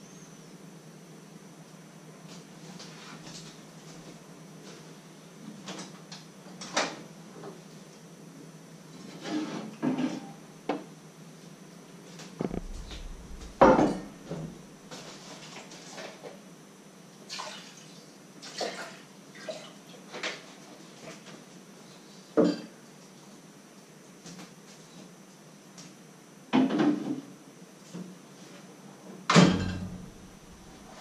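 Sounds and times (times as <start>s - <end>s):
dull thud: 12.4s - 14.8s, 29.6s - 31.0s.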